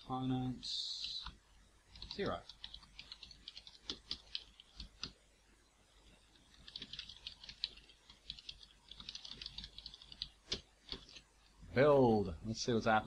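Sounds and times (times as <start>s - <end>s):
computer keyboard typing: 1.0s - 5.2s, 6.3s - 11.3s.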